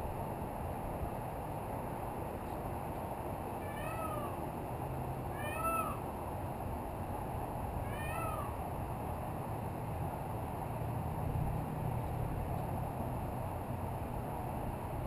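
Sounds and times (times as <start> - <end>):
peacock calling: 3.6 - 4.4, 5.3 - 6.1, 7.8 - 8.6.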